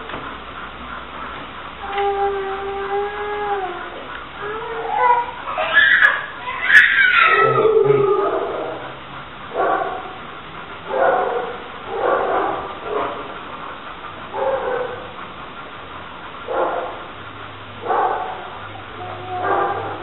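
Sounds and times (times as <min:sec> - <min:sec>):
dog barking: 0:09.5 - 0:10.2, 0:10.9 - 0:13.2, 0:14.4 - 0:15.1, 0:16.5 - 0:17.0, 0:17.8 - 0:20.0.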